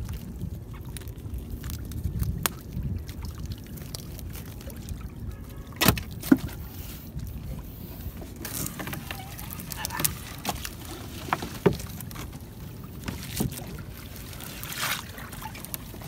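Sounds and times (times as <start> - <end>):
water trickling and dripping: 0.0 - 16.0
wet net being hauled: 8.1 - 16.0.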